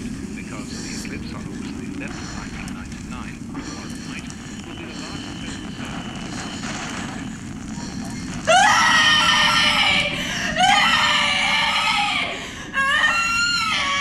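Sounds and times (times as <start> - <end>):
low steady rumble: 0.0 - 14.0
woman screaming: 8.5 - 14.0.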